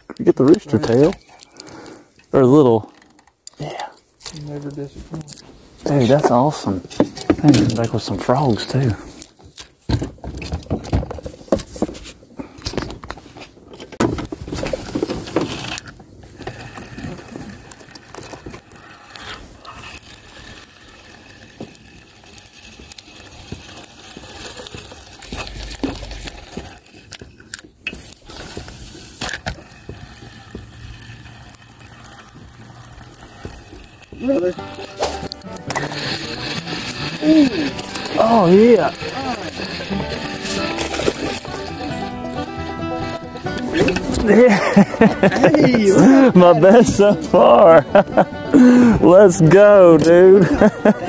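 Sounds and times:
fishing reel cranking: 14.5 - 47.8.

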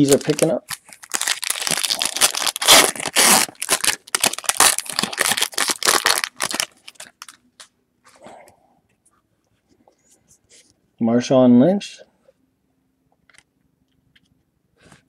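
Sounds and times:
foil wrapper crackling: 0.0 - 7.7.

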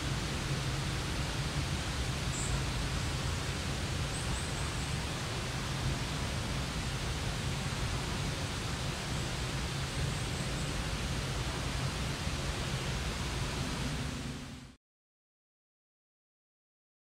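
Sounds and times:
steady rushing noise: 0.0 - 14.8.

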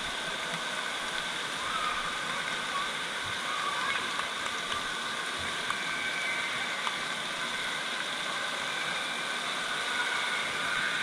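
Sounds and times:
splashing water in echoing hall: 0.0 - 11.0.

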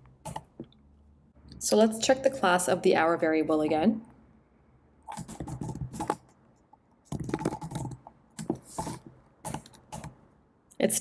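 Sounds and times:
keyboard typing: 0.2 - 0.8, 5.0 - 6.4, 7.0 - 10.2.

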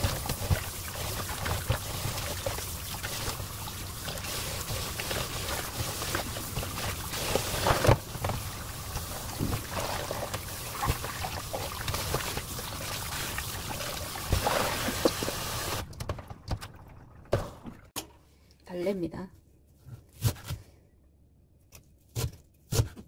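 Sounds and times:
water splashing: 0.0 - 17.9.

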